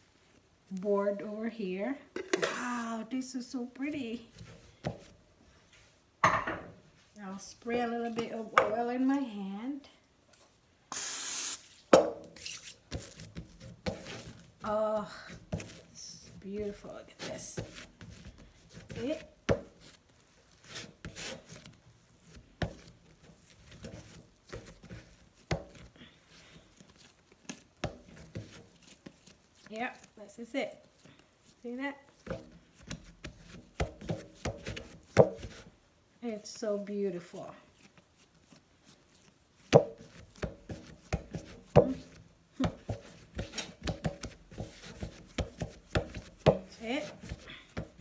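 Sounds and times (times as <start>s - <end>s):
hands rubbing dough: 3.8s - 6.1s, 11.5s - 48.0s
dough knocking on wooden board: 39.7s - 48.0s.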